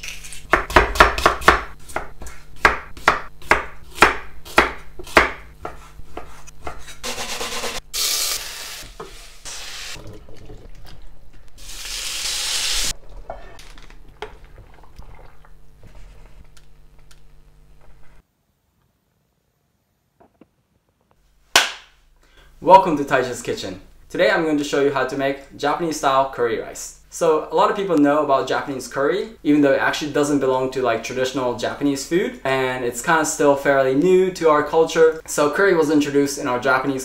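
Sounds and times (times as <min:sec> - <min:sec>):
knife chopping on wooden board: 0:00.5 - 0:07.0
food sizzling in pot: 0:07.1 - 0:10.0, 0:11.5 - 0:13.6.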